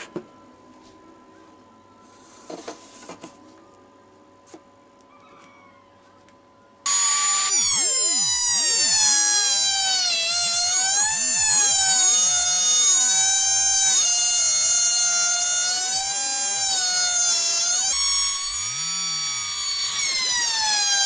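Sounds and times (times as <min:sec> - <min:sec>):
electric router whining: 0:06.9 - 0:21.0.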